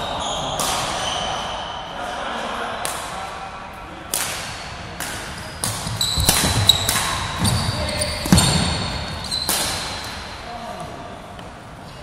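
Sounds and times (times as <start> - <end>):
racket hitting shuttlecock: 4.1 - 10.3
shoe squeaks on court: 5.4 - 10.2.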